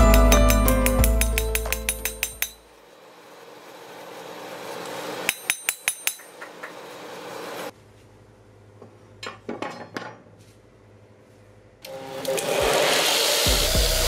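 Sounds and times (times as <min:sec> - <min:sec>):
steel bars clinking on table: 0:00.0 - 0:02.6, 0:05.3 - 0:06.6
hammer striking steel on anvil: 0:00.0 - 0:02.7, 0:05.2 - 0:06.8.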